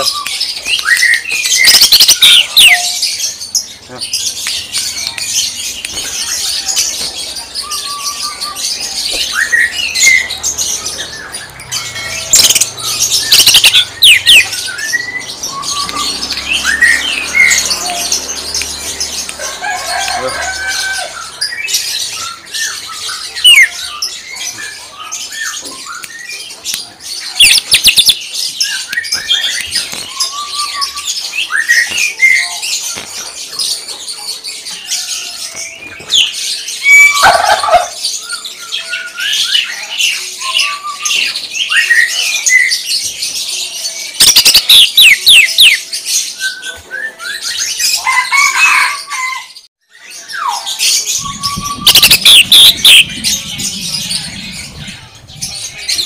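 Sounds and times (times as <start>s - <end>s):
bird singing whistles and chirps: 6.2s - 18.1s, 21.5s - 26.4s, 27.3s - 33.0s, 44.2s - 47.8s, 49.9s - 56.0s
sharp rapid-fire bird bursts: 12.2s - 14.6s, 51.8s - 53.1s.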